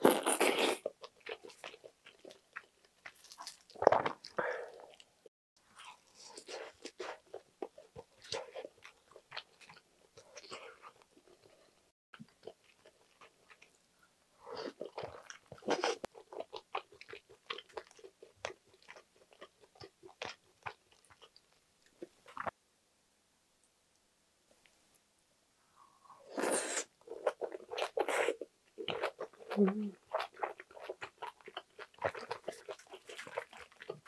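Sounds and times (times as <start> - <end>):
person chewing with wet smacks: 14.8 - 21.4, 27.2 - 34.0.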